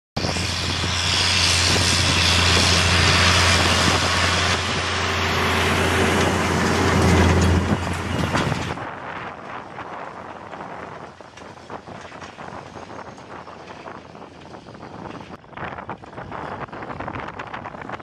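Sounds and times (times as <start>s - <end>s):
tractor diesel engine under load: 0.2s - 12.4s
cultivator working dry soil: 0.2s - 18.0s.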